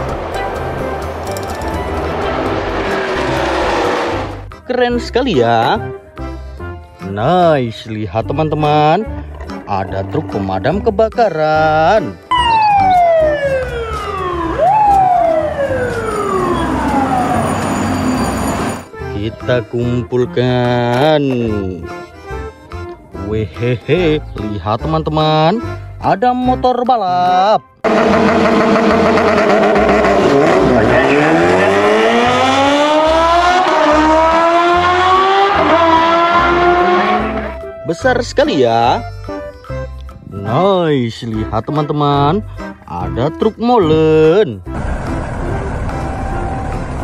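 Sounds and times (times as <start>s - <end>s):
motorcycle engines at full throttle: 0.0s - 4.5s, 27.8s - 37.6s
mechanical siren wailing: 12.3s - 18.9s, 31.1s - 37.7s, 44.8s - 47.0s.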